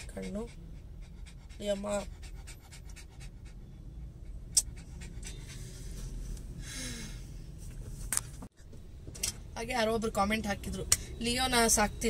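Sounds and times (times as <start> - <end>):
dog panting: 0.0 - 6.0.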